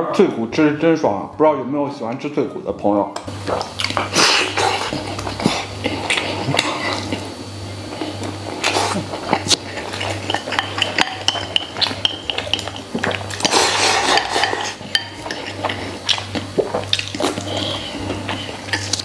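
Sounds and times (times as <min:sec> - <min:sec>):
close-up eating noises: 0:03.2 - 0:19.0.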